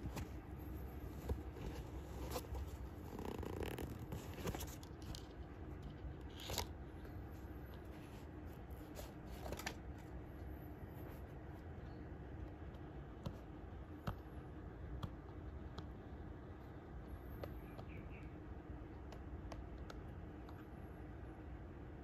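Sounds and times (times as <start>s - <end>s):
shoe handling taps and rustles: 0.0s - 5.4s
low steady rumble: 0.0s - 22.0s.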